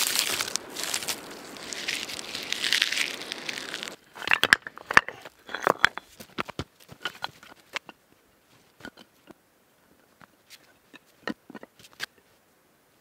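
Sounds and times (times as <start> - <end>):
bark crumpling and crackling: 0.0 - 4.0
rocks clacking together: 0.0 - 8.0, 8.7 - 9.4, 10.2 - 12.1.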